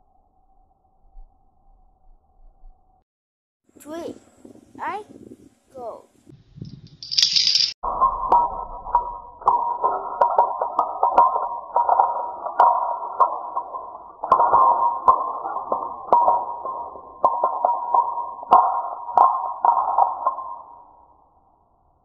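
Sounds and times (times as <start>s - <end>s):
electronic pinging tone: 7.8s - 21.0s.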